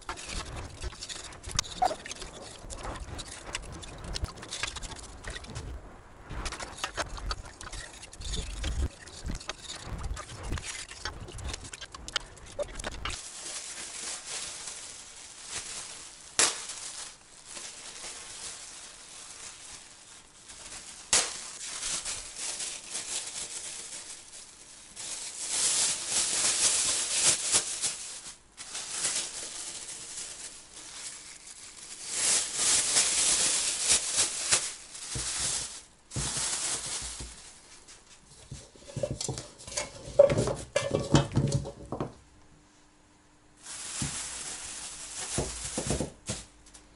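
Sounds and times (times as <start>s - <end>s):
plastic bags crinkling: 0.0s - 42.1s, 43.6s - 46.7s
root pieces tumbling from metal bowl: 38.4s - 42.1s.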